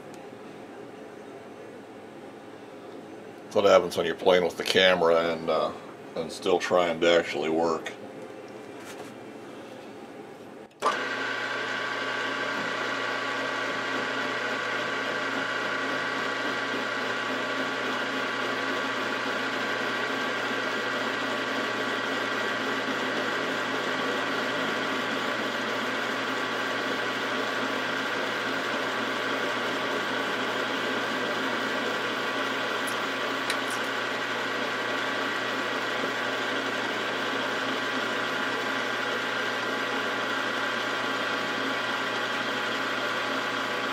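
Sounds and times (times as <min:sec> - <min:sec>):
milling machine gear whine: 0:12.0 - 0:43.9.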